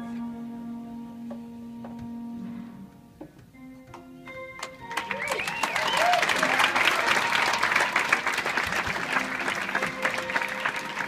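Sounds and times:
band holding notes: 0:00.0 - 0:11.0
audience applauding: 0:04.6 - 0:11.0.

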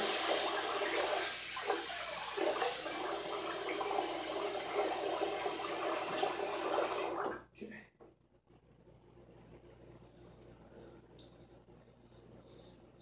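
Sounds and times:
sink tap running: 0:00.0 - 0:07.4.

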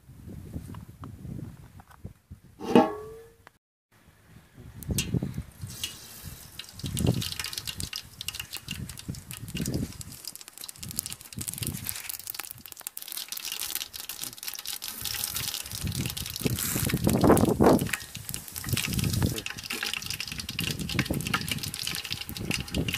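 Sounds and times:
water gushing and splashing: 0:05.6 - 0:22.9.

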